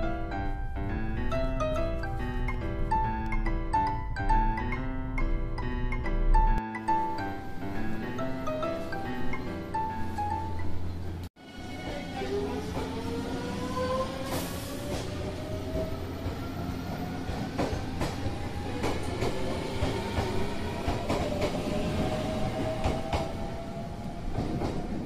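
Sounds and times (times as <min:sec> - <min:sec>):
train rumble: 0:08.2 - 0:25.0.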